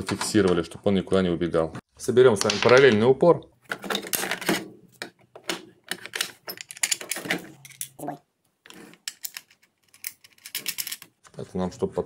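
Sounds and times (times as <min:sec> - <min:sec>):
plastic parts clicking and knocking: 0:02.4 - 0:11.2.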